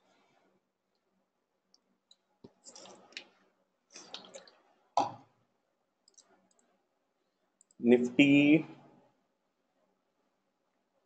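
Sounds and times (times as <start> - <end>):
computer mouse clicks: 6.0 - 6.7.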